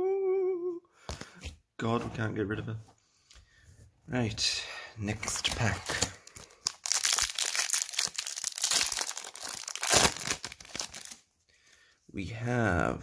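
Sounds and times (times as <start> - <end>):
foil wrapper tearing and crinkling: 5.4 - 11.2.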